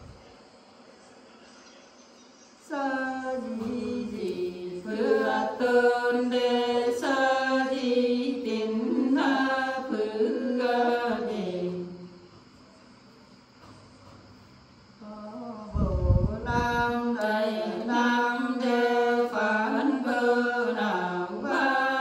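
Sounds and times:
women singing unaccompanied: 2.6 - 12.3, 15.0 - 22.0.

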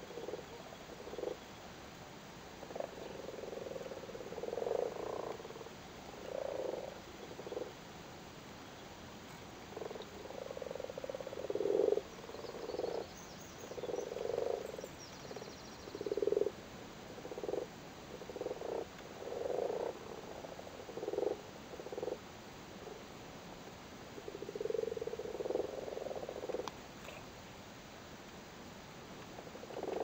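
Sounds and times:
frogs croaking in chorus: 0.0 - 1.6, 2.6 - 7.8, 9.3 - 23.1, 24.1 - 27.4, 29.4 - 30.0.

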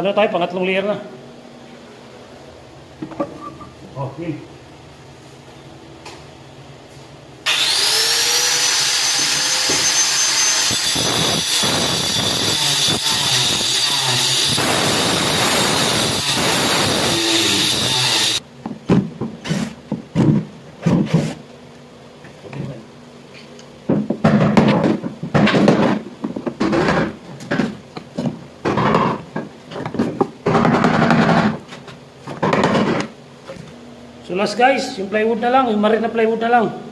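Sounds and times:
power saw cutting board: 7.5 - 18.4
power tool motor whine: 7.5 - 18.4.

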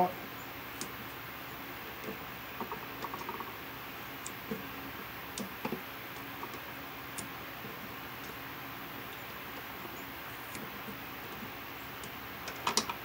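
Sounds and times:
steady hiss: 0.0 - 13.0
tape clicks and crackles: 2.0 - 3.6, 4.2 - 8.4, 10.4 - 13.0.

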